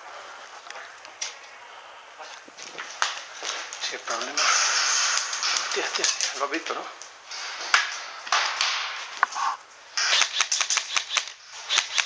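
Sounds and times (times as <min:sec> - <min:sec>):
rustling noise: 0:02.2 - 0:10.2
airsoft gunfire: 0:10.0 - 0:12.0.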